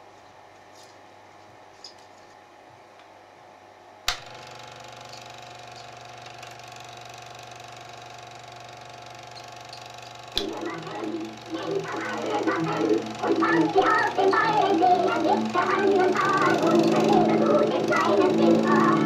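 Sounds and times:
projector switch click: 0:04.1 - 0:04.3
film projector motor humming: 0:04.1 - 0:19.0.

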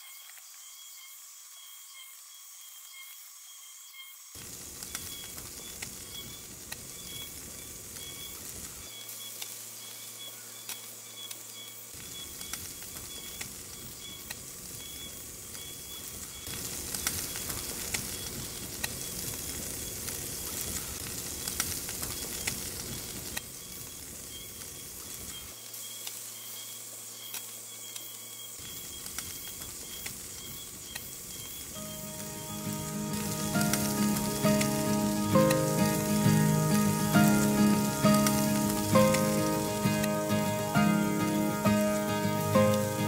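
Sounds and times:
pops and crackles: 0:04.4 - 0:09.6, 0:12.0 - 0:26.2, 0:28.6 - 0:43.0
food sizzling in a pan: 0:04.4 - 0:43.0.

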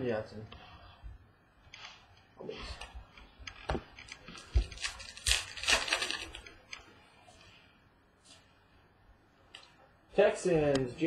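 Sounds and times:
papery scraping rustle: 0:04.1 - 0:06.5.

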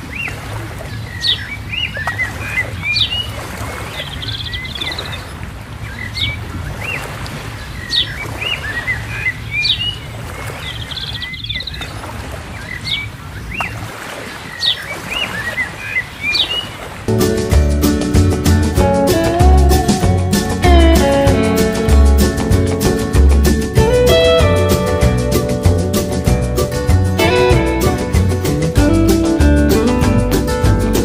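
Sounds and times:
birds chirping and calling: 0:00.0 - 0:16.9
bird trills: 0:07.8 - 0:10.0.

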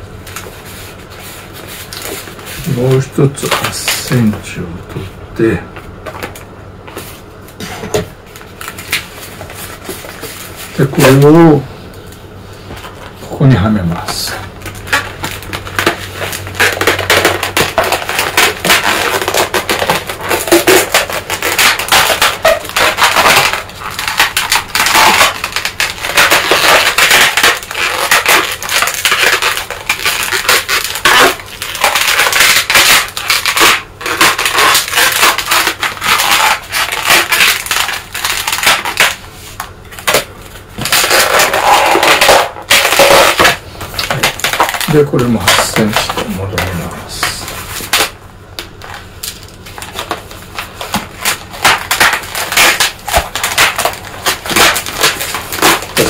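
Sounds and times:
rubber balloons squeaking: 0:13.0 - 0:39.2, 0:39.8 - 0:48.2, 0:48.8 - 0:56.0.

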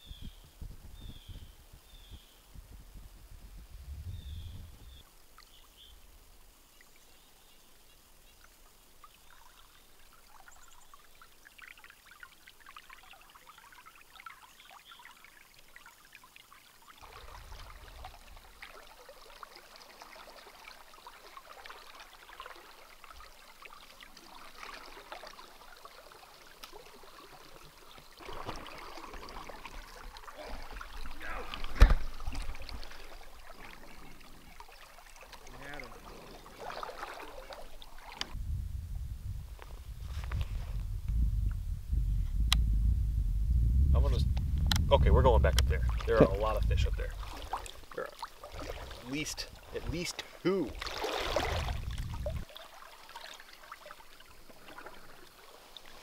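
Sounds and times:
low rumbling: 0:02.6 - 0:05.0, 0:38.2 - 0:47.9, 0:50.7 - 0:52.4
river water trickling: 0:04.4 - 0:38.4, 0:44.7 - 0:56.0
sharp thump: 0:31.8 - 0:32.1.

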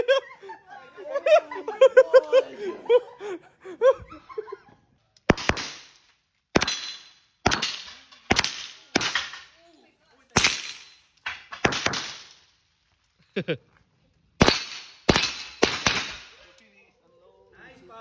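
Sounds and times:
rifle shots echoing: 0:05.3 - 0:09.5, 0:10.4 - 0:12.5, 0:14.4 - 0:16.5.

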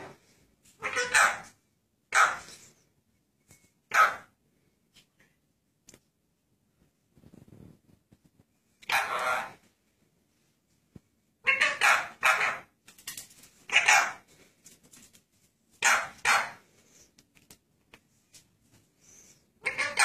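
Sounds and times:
parakeet squawking: 0:00.8 - 0:01.5, 0:02.1 - 0:02.5, 0:08.8 - 0:09.6, 0:11.4 - 0:12.7, 0:13.7 - 0:14.2, 0:15.8 - 0:16.6, 0:19.6 - 0:20.0.

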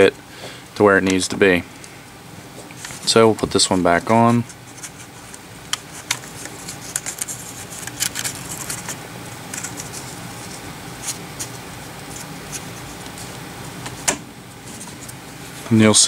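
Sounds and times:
light scratching: 0:02.7 - 0:14.0.

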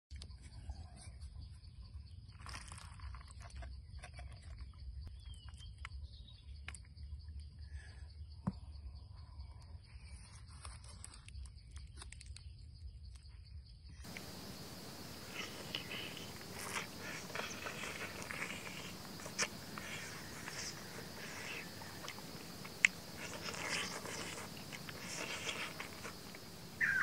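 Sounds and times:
faint bird chirp: 0:00.1 - 0:27.0
food handling clicks and crackles: 0:10.4 - 0:13.2, 0:14.1 - 0:26.6.

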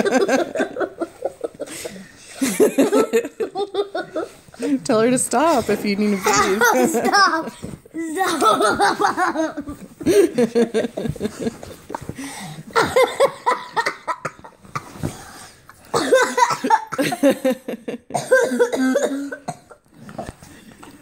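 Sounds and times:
child laughing: 0:06.2 - 0:10.3.

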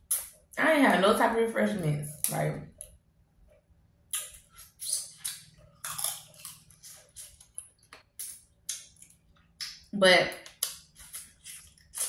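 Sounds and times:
shellfish shells crunching: 0:04.2 - 0:09.8, 0:10.4 - 0:12.0.

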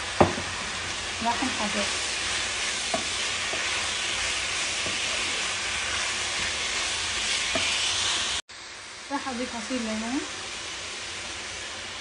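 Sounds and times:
chicken sizzling in oil: 0:00.0 - 0:12.0
wooden spoon knocking on pan: 0:00.2 - 0:00.7, 0:02.9 - 0:03.8, 0:04.8 - 0:05.3, 0:07.5 - 0:07.8.

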